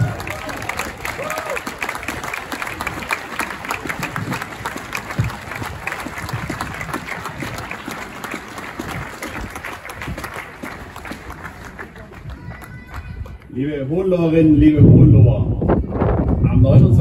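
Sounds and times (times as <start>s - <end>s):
crowd applauding: 0.0s - 13.6s.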